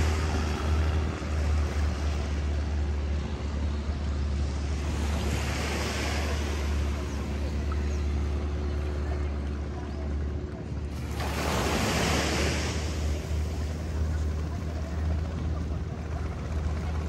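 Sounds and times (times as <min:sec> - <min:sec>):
surf washing onto beach: 0:10.9 - 0:14.1.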